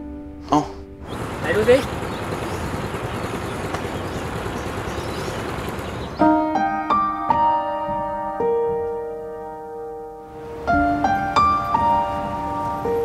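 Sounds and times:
soft piano music: 0.0 - 1.2, 5.9 - 13.0
steady background noise: 1.0 - 6.2.

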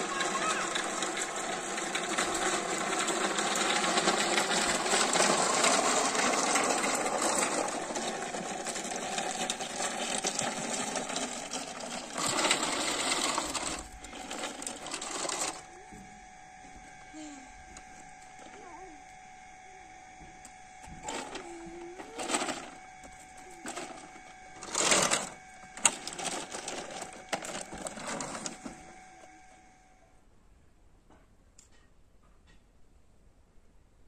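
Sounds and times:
toy trucks rattling over gravel: 0.0 - 15.7, 21.0 - 28.9.

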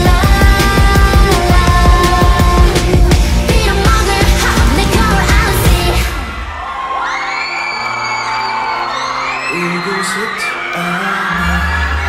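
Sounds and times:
pop dance music with heavy drum beat: 0.0 - 6.7.

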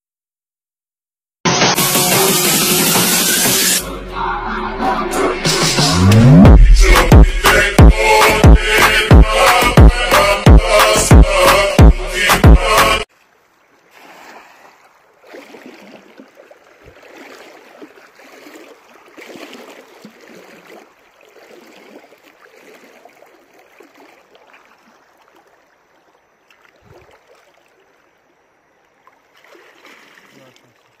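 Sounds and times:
water splashing around wading person: 13.1 - 31.0.

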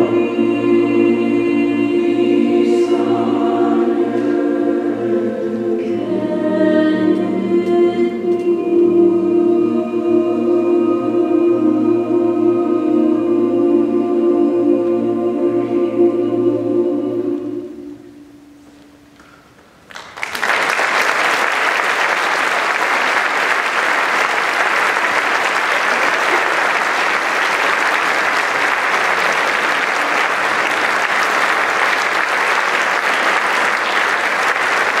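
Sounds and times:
audience applauding: 19.9 - 35.0.

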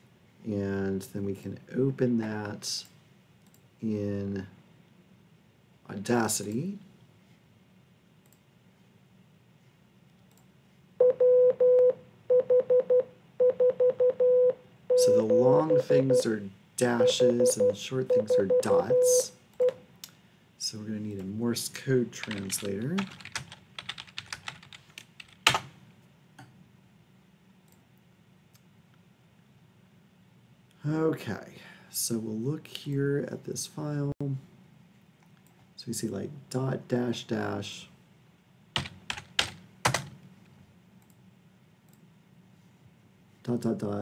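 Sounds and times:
faint clicks: 3.4 - 3.6
morse code beeps: 11.0 - 16.3, 17.0 - 19.7
typing on computer keyboard: 22.2 - 25.7, 38.8 - 40.1.

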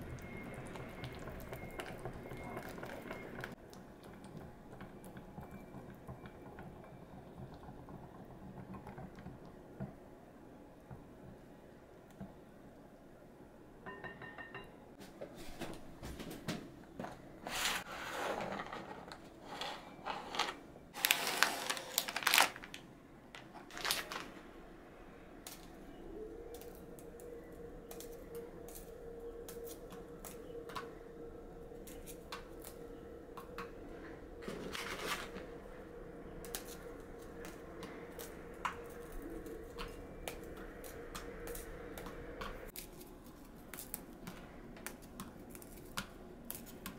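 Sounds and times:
cookies being crushed: 21.0 - 24.4
plastic packaging crinkling: 21.0 - 24.4, 34.4 - 35.4
steady hum: 22.9 - 46.9.

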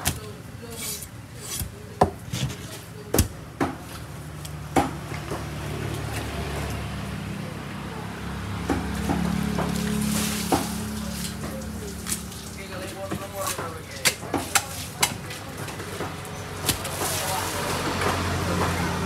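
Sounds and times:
low engine hum: 4.4 - 12.7, 15.4 - 19.0.

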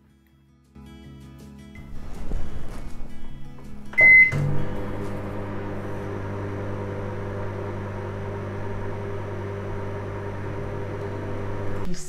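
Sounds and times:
microwave oven humming: 3.9 - 11.9.

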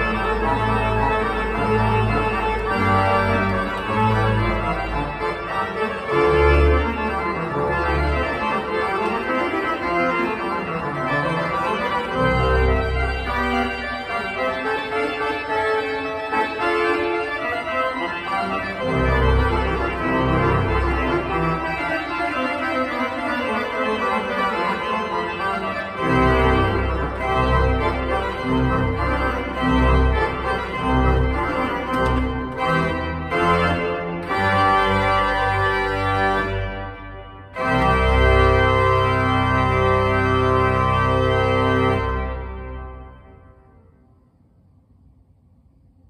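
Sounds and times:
deep organ bass notes: 0.0 - 43.4
pipe organ chords: 0.0 - 44.2.

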